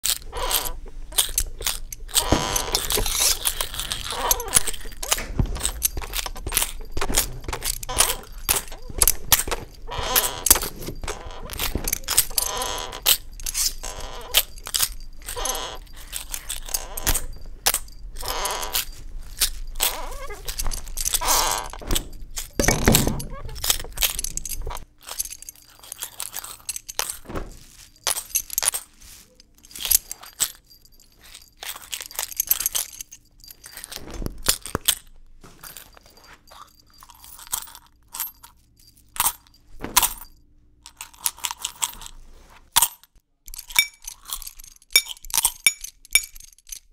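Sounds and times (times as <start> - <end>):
sharp knocks and clatters: 20.2 - 24.9.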